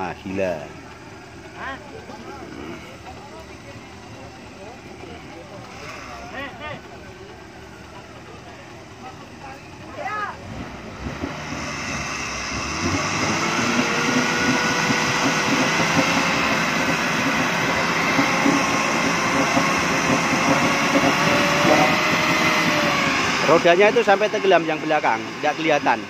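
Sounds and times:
car engine revving hard: 4.0 - 6.8, 10.0 - 26.0.

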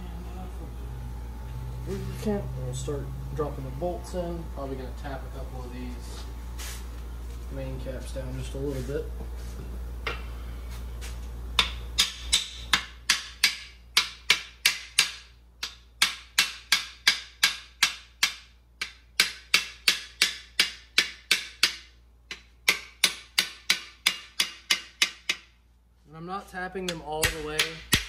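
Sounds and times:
hammer tapping metal: 11.6 - 25.6, 26.8 - 28.0.

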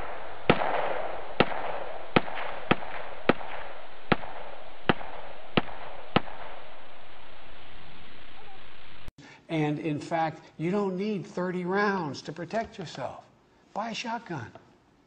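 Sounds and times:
sharp bangs: 0.0 - 6.9
steady hiss: 2.9 - 11.0.

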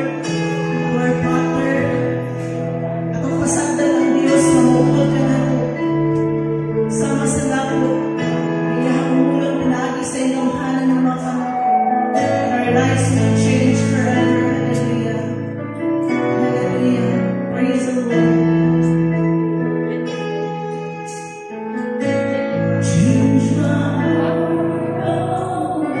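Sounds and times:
bass and guitar: 0.0 - 17.0
sustained keyboard chords: 0.0 - 26.0.

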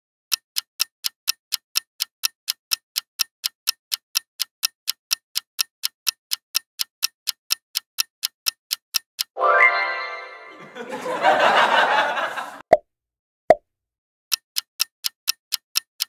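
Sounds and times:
clock ticking: 0.3 - 9.4, 14.3 - 16.0.

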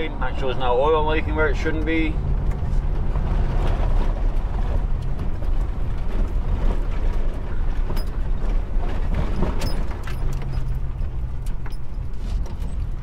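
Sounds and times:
car interior road rumble: 0.0 - 13.0.

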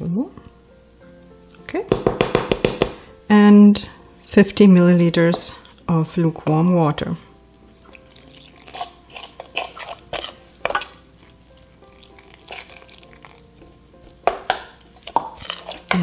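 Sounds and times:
quiet background music: 0.0 - 16.0
water pouring: 7.8 - 8.7
metal spoon scraping steel bowl: 7.9 - 11.4, 15.0 - 16.0.

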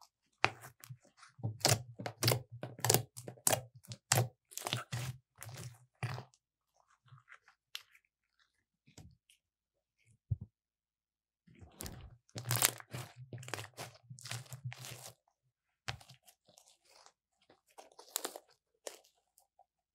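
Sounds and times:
slime crackling and popping: 1.6 - 5.1, 11.8 - 15.1.

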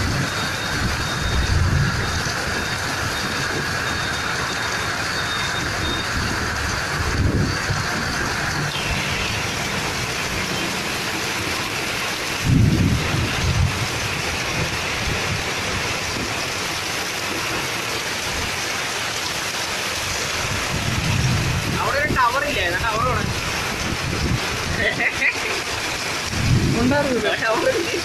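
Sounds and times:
heavy rain pouring: 0.0 - 28.0
low rumble: 20.4 - 22.0.

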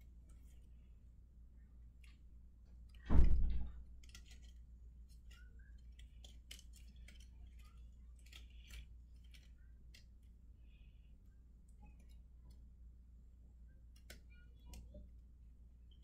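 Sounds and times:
clicks of model pieces handled: 3.8 - 10.3.

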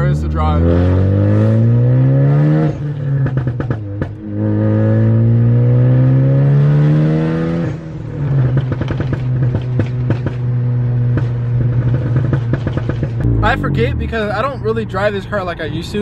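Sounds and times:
car engine accelerating: 0.0 - 16.0
exhaust crackles: 7.7 - 16.0.

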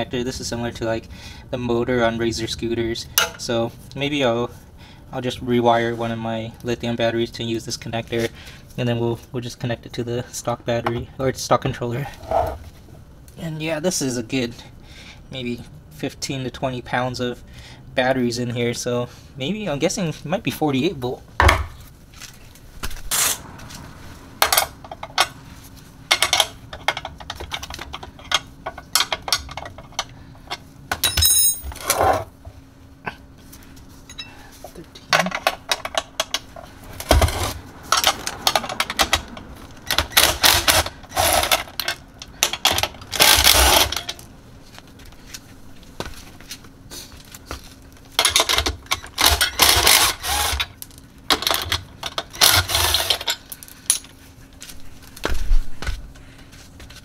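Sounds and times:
wrench and bolts clinking on metal: 30.9 - 32.0
cordless drill spinning bolts: 39.9 - 41.9, 42.5 - 44.0, 48.2 - 50.7, 51.4 - 53.4.

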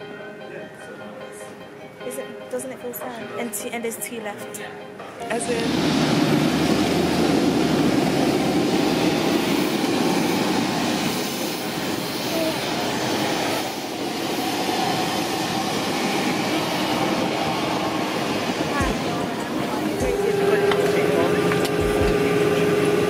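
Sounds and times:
aircraft engine rushing: 5.2 - 23.0.

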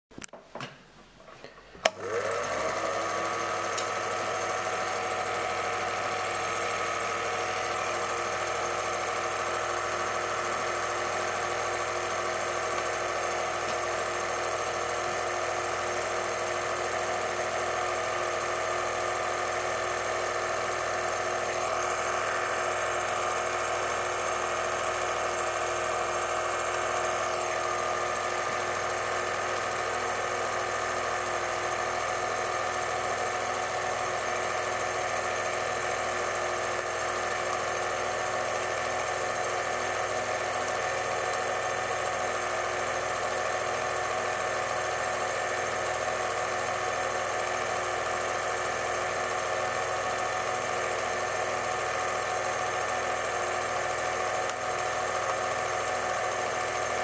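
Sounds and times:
projector switch click: 1.8 - 2.1
film projector motor running: 1.9 - 57.0.

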